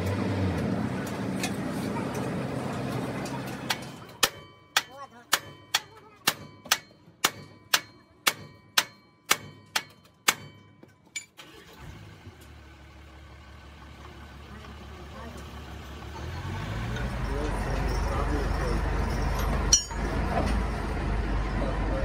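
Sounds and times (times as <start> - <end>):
engine running: 0.0 - 4.2, 11.4 - 22.0.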